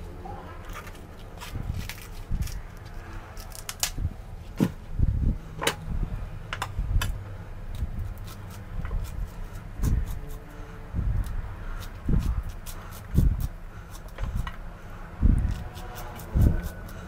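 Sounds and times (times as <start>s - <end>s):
knife scraping corn cob: 7.8s - 14.6s, 15.5s - 17.0s.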